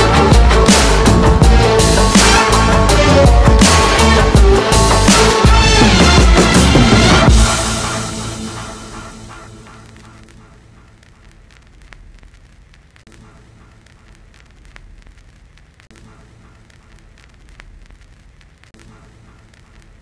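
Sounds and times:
background music: 0.0s - 11.0s
crackles and clicks: 8.5s - 20.0s.

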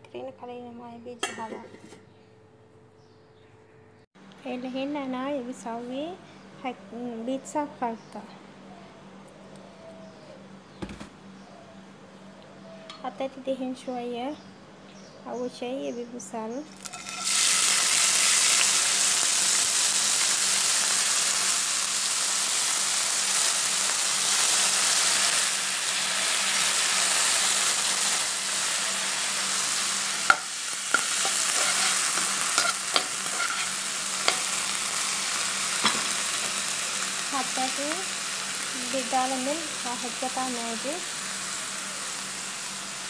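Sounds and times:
onion sizzling in oil: 16.8s - 43.0s
utensil knocking against pan: 30.3s - 33.4s.

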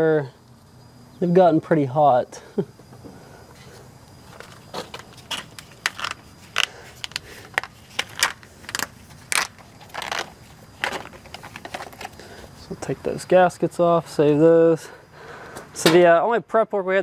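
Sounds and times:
metal parts scraping: 4.2s - 12.2s.

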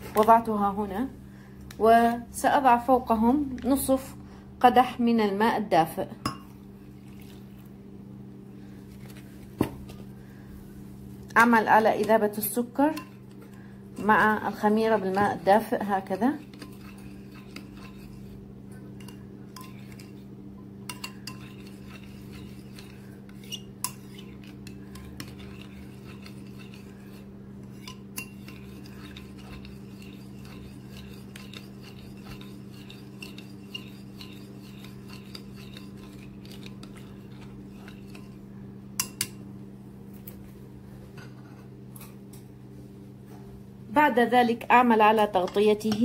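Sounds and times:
spoon scraping ceramic bowl: 11.8s - 39.3s
spoon clinking against bowl: 20.9s - 22.0s.

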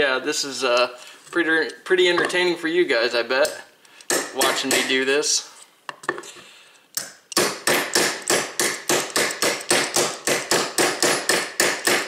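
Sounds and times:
hammer tapping steel punch: 7.0s - 12.0s.

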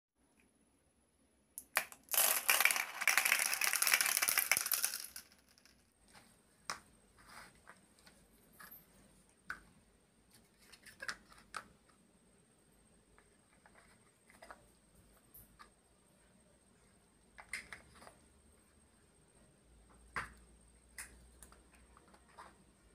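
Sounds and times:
glass marbles clattering on plastic: 1.6s - 5.8s
plastic blocks set down on table: 1.6s - 6.8s.

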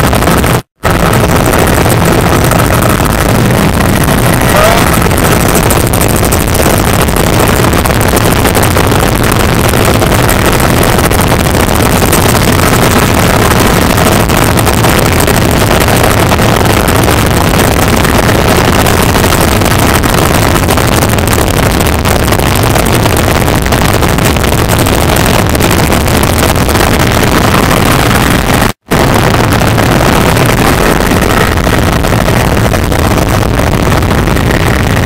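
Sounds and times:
helicopter engine and rotor noise: 0.0s - 21.5s.

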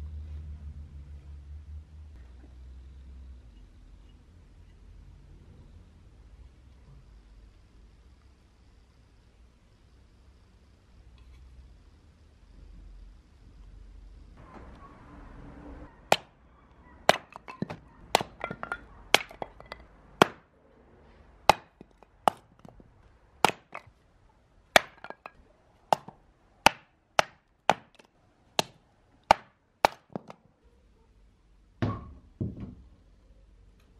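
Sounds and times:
hatchet chopping firewood: 16.1s - 16.3s, 17.1s - 20.5s, 21.5s - 22.8s, 23.4s - 23.9s, 24.8s - 30.5s
split wood pieces clattering: 17.0s - 20.4s, 21.5s - 22.8s, 23.4s - 23.9s, 24.8s - 30.4s.

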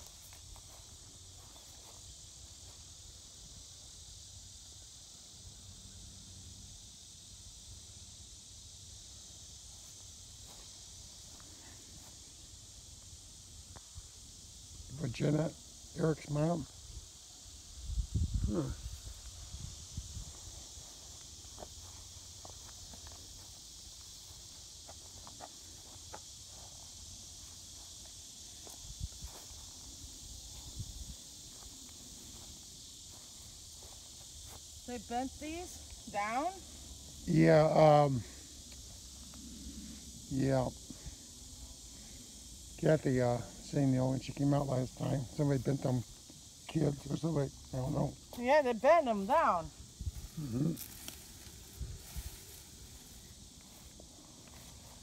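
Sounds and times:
soft footsteps on grass: 0.0s - 3.4s, 9.6s - 14.0s, 18.8s - 36.5s, 49.8s - 55.0s
insects buzzing: 0.0s - 55.0s.

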